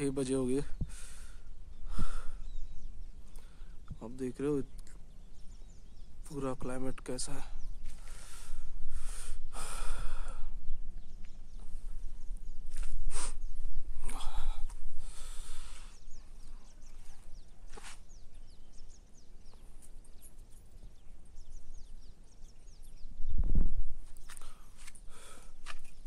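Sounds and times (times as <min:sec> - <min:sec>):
wind buffeting microphone: 0:00.0 - 0:04.1, 0:07.5 - 0:17.5, 0:20.8 - 0:26.0
small birds chirping: 0:00.0 - 0:26.0.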